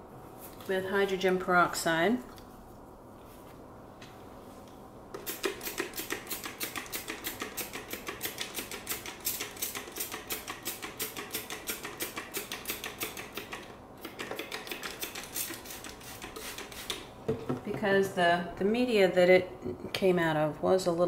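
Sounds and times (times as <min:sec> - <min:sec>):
spray bottle hissing: 0:15.0 - 0:17.0.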